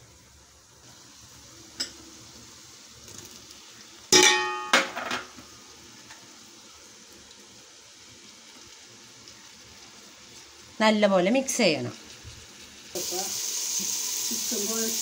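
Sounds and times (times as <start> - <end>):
onions sizzling faintly in oil: 0.0 - 15.0
bowl clanking against metal pot: 4.2 - 5.4.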